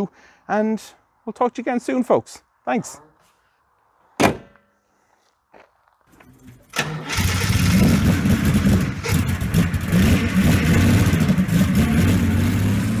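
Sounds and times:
vehicle engine running: 7.4 - 13.0.

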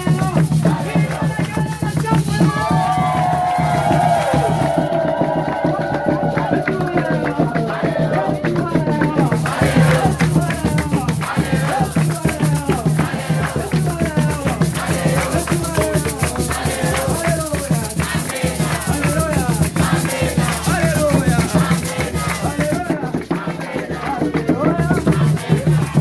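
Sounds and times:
shaker rhythm: 0.0 - 26.0
gospel choir singing: 0.1 - 26.0.

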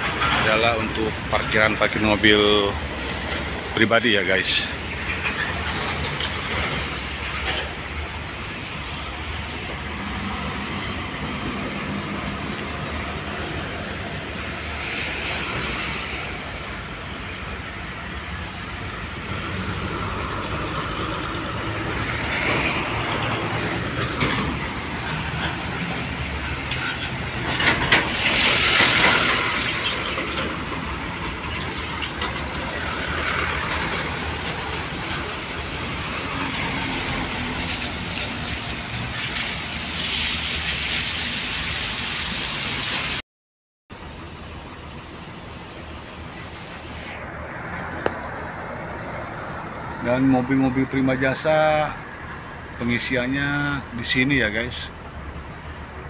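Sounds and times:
hissing rush: 0.0 - 43.2
trucks and road traffic: 0.0 - 43.2, 43.9 - 56.0.

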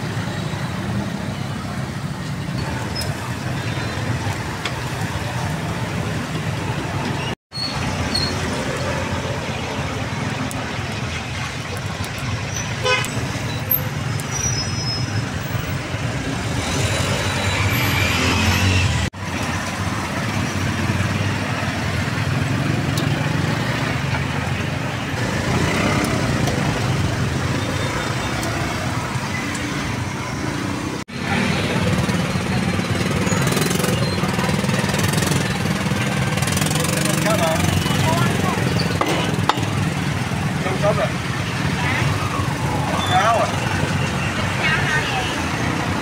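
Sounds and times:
traffic running: 0.0 - 46.0
vehicle horn toot: 12.8 - 13.2.

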